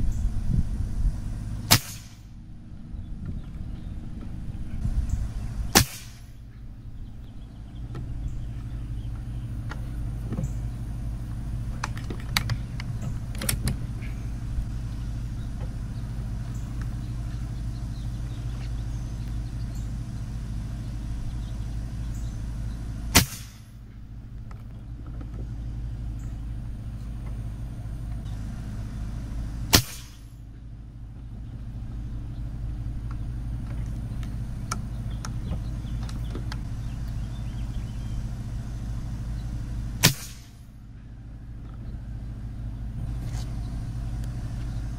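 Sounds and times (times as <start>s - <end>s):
steady low rumble: 0.0s - 44.9s
air rifle shots: 1.6s - 2.4s, 5.7s - 6.4s, 23.1s - 23.8s, 29.7s - 30.4s, 40.0s - 40.7s.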